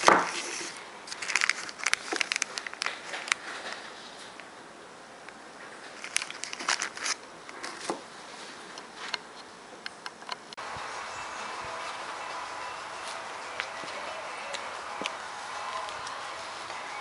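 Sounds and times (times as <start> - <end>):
plastic bag crinkling: 0.0 - 4.4, 5.8 - 8.0
faint hum: 0.0 - 17.0
steady hiss: 0.0 - 17.0.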